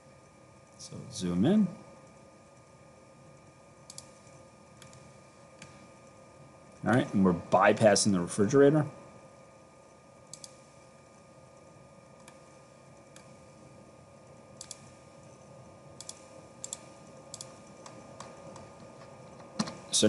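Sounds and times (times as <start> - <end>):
faint steady hum: 0.0 - 20.0
computer mouse clicks: 3.8 - 5.8, 10.3 - 10.7, 12.2 - 13.4, 14.6 - 15.0, 16.0 - 19.9.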